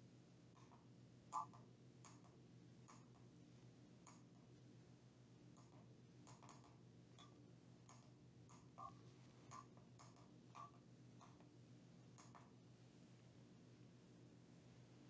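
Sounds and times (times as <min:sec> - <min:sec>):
faint steady hum: 0:00.0 - 0:15.0
light clicks and taps of plastic: 0:01.4 - 0:03.3, 0:09.5 - 0:11.5.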